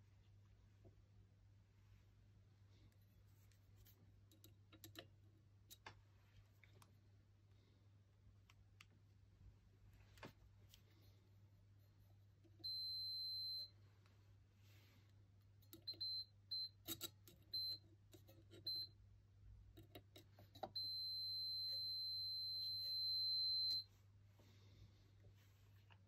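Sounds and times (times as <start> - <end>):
multimeter buzzer beeping: 12.6 - 13.7, 15.8 - 17.8, 20.6 - 23.9.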